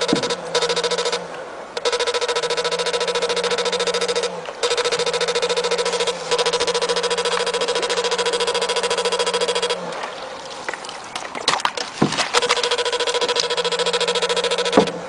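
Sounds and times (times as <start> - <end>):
knocks and clicks: 0.0 - 1.2, 10.7 - 15.0
electric fish shocker buzzing: 0.0 - 15.0.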